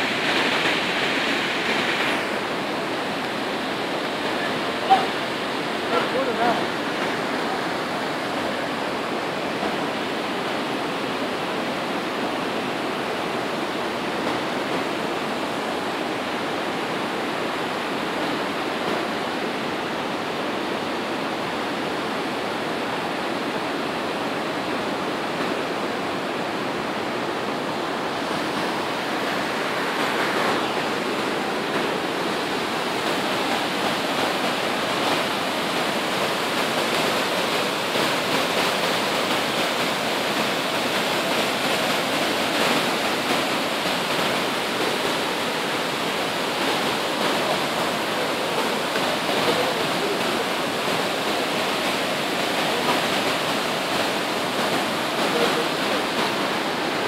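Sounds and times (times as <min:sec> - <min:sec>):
waterfall roaring: 0:00.0 - 0:57.0
white-water rapids rushing: 0:00.0 - 0:57.0.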